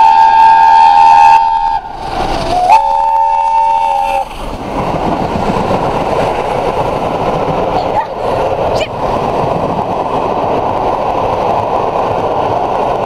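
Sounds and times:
steam locomotive chime whistle: 0.0s - 1.9s, 2.5s - 4.3s
train rushing past: 0.0s - 13.0s.

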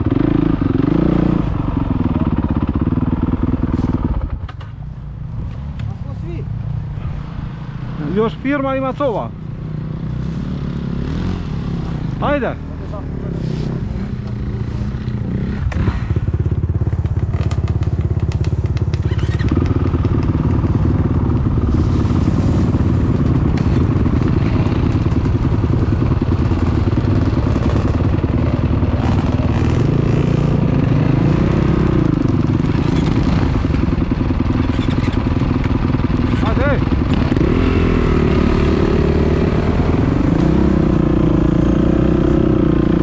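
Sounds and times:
engine revving: 0.0s - 1.7s, 20.8s - 43.0s
dirt bike engines idling: 0.0s - 43.0s.

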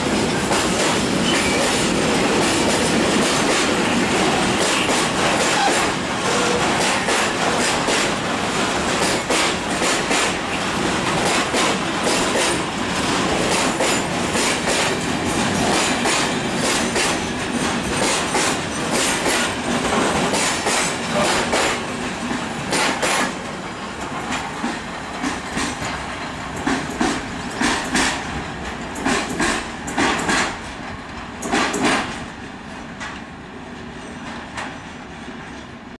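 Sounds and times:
train wheels clattering over rail joints: 0.0s - 35.8s.

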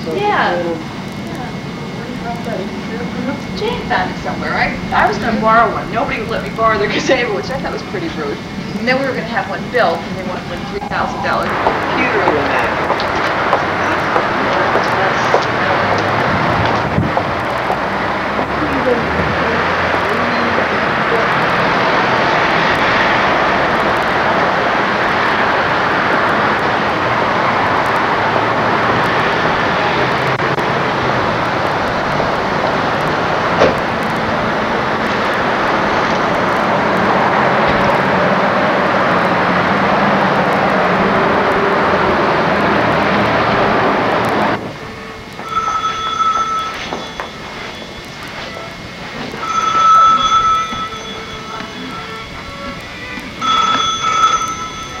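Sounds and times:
car road and wind noise: 10.7s - 45.6s.

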